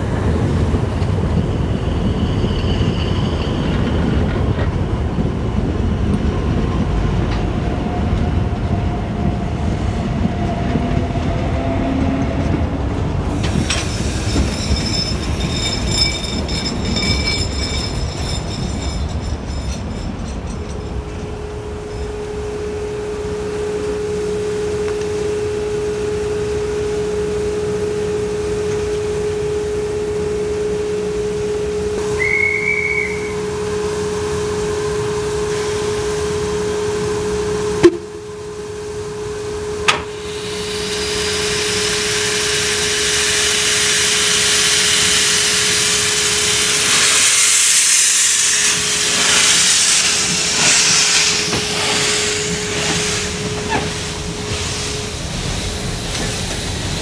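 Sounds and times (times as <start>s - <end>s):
steam locomotive hissing: 13.2s - 24.2s, 31.1s - 38.0s, 39.8s - 57.0s
steady whine: 13.4s - 57.0s
high whistle-like tone: 30.1s - 33.7s.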